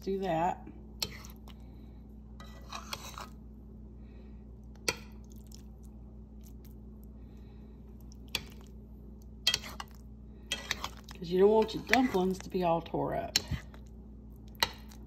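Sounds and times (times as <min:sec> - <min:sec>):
steady low hum: 0:00.0 - 0:15.0
spoon scraping pot: 0:01.0 - 0:01.5, 0:02.4 - 0:03.4, 0:09.4 - 0:13.8.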